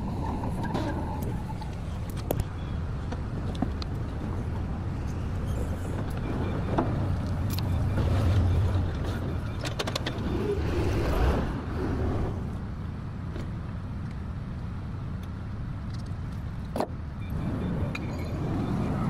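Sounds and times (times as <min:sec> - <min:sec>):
forklift engine rumble: 0:00.0 - 0:15.4.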